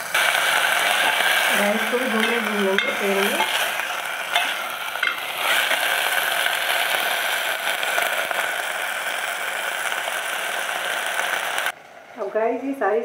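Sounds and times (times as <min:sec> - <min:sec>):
food sizzling in oil: 0:00.0 - 0:11.8
metal ladle stirring and scraping: 0:04.3 - 0:05.3.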